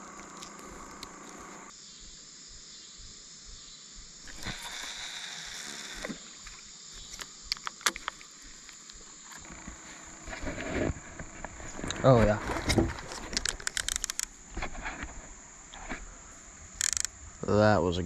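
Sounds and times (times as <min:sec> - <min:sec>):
insects droning: 0:00.0 - 0:18.0
fishing reel line whirring: 0:04.2 - 0:06.4, 0:13.4 - 0:14.3, 0:16.8 - 0:17.1
sharp clicks: 0:13.2 - 0:14.3, 0:16.8 - 0:17.1.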